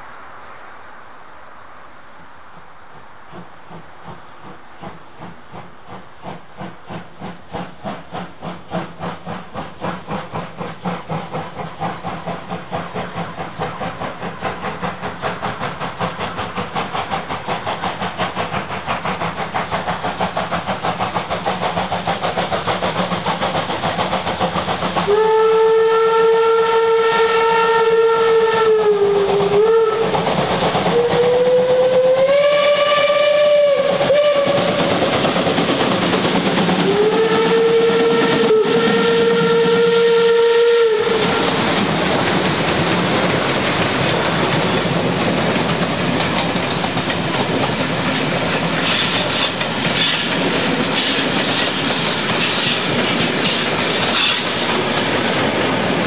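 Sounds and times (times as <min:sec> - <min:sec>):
steam locomotive exhaust beats: 0:01.8 - 0:56.0
steam whistle blast: 0:25.1 - 0:30.2, 0:30.9 - 0:34.8, 0:36.8 - 0:41.6.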